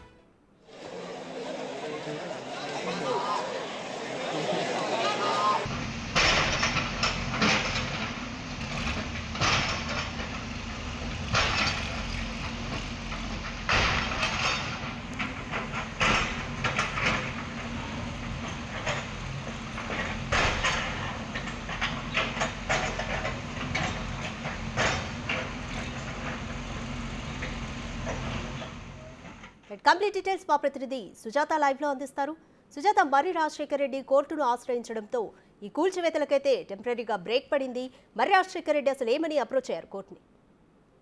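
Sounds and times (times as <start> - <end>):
diesel engine running: 5.7 - 29.6.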